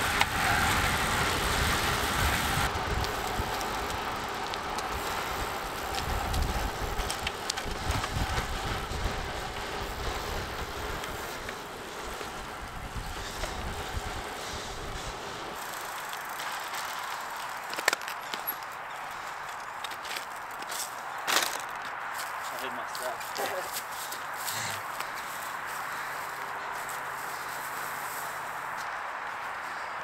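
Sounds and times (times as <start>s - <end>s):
wind buffeting microphone: 0.0s - 15.5s
tyre and road rumble: 0.0s - 30.0s.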